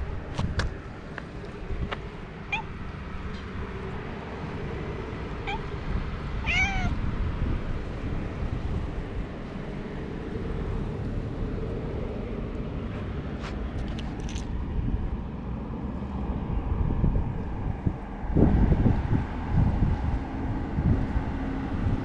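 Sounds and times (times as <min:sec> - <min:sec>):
cat meowing: 0:02.5 - 0:02.8, 0:05.4 - 0:05.8, 0:06.4 - 0:07.0.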